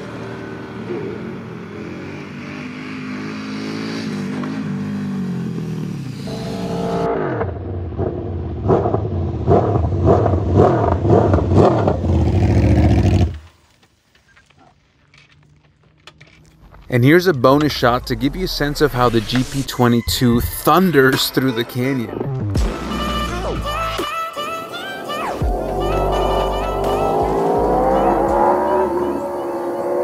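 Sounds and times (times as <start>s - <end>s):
motorcycle engine at high revs: 0.0s - 13.4s, 25.4s - 30.0s
motorcycle engine wavering: 0.0s - 13.5s, 22.1s - 30.0s.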